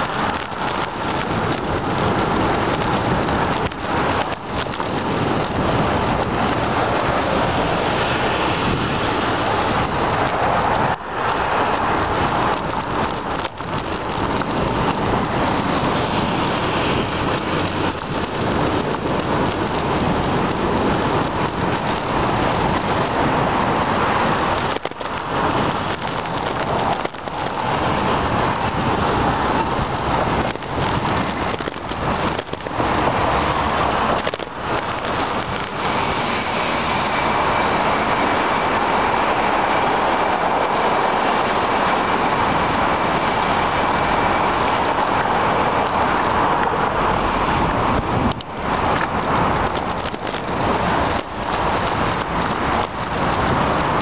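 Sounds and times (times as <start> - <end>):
wind over microphone: 0.0 - 54.0
tyre hiss on wet pavement: 23.3 - 47.8.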